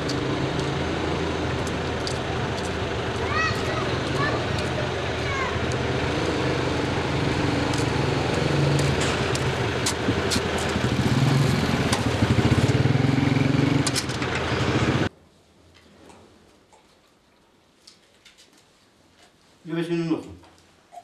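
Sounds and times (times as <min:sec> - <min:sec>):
small motorcycle engine: 0:00.0 - 0:15.1.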